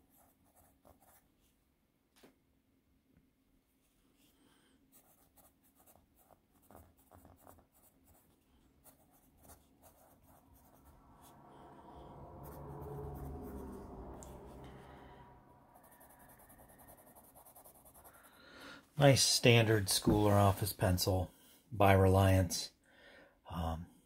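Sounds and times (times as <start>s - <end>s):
pencil scratching on paper: 0.0s - 1.3s, 4.9s - 13.9s, 15.6s - 18.4s
low hum: 10.0s - 18.1s.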